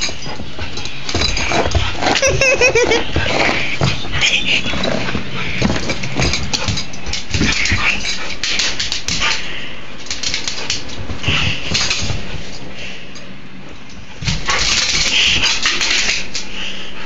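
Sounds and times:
dog claws scrabbling: 0.0 - 12.4, 14.2 - 16.5.

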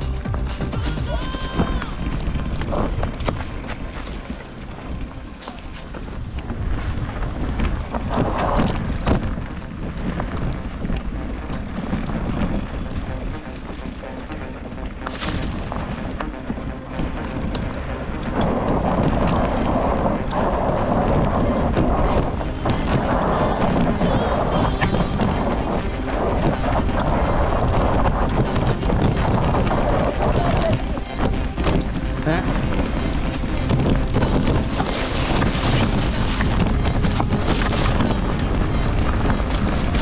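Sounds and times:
wind rumbling on microphone: 0.0 - 40.0
bike knocking and rattling: 0.2 - 22.0
tyres crunching over dirt and stones: 0.2 - 40.0.

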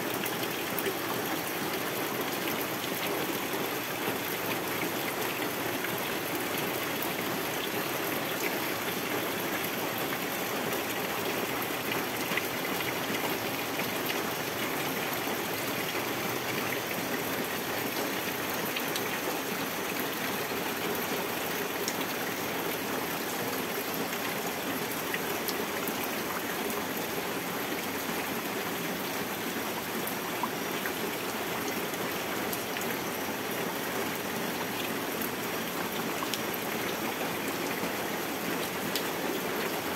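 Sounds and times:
steady rain on foliage and water: 0.0 - 39.9.

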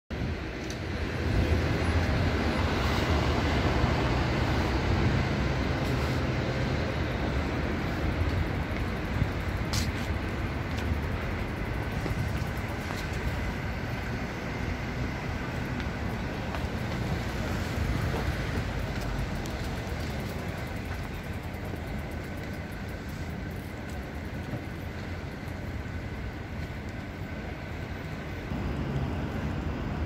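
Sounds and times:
city street traffic rumble: 0.1 - 30.0.

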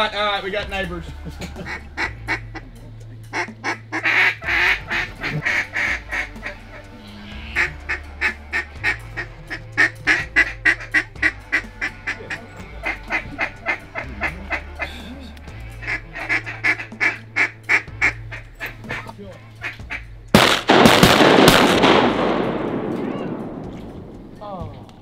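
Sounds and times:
low background music: 0.0 - 25.0
duck call quacks: 1.4 - 20.6.

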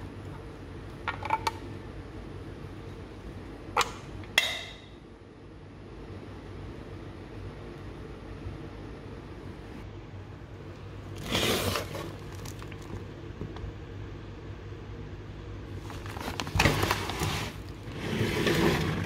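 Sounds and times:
steady low hum: 0.0 - 19.0
foil bag crinkling: 11.2 - 13.1, 15.8 - 19.0.

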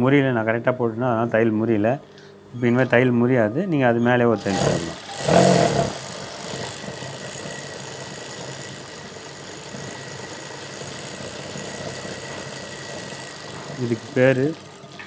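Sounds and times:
sewing machine running: 4.4 - 15.0.

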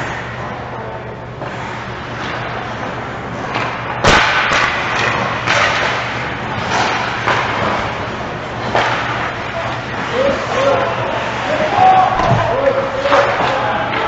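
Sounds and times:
puck or stick impact: 3.5 - 8.0, 8.6 - 9.4, 11.6 - 14.0.

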